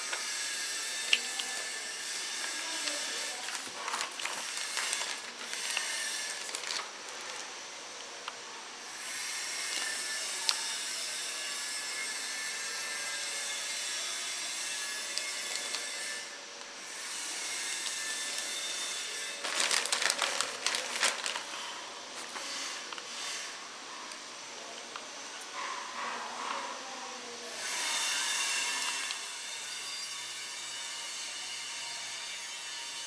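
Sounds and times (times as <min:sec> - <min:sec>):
plastic wrapping crinkling: 0:01.0 - 0:07.5, 0:15.1 - 0:16.1, 0:17.8 - 0:23.1.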